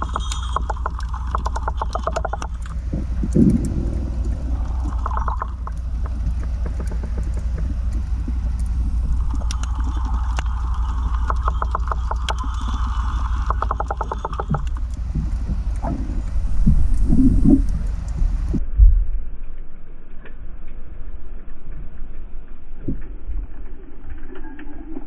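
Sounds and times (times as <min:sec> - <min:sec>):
rapid clicking underwater: 0:00.0 - 0:18.6
low rumble of moving water: 0:00.0 - 0:25.0.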